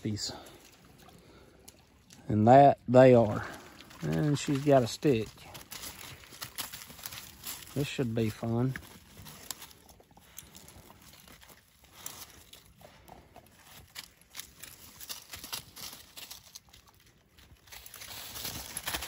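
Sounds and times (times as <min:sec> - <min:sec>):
dry leaves rustling and crackling: 0:03.2 - 0:19.0
twigs snapping: 0:03.5 - 0:07.8, 0:08.5 - 0:19.0.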